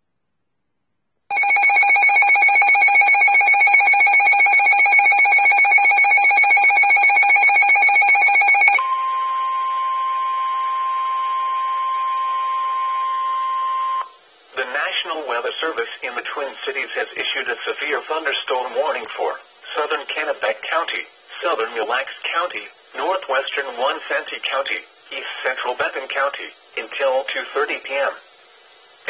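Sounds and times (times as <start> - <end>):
rapid trilling alarm tone: 1.3 - 8.8
steady warning tone: 1.3 - 14.2.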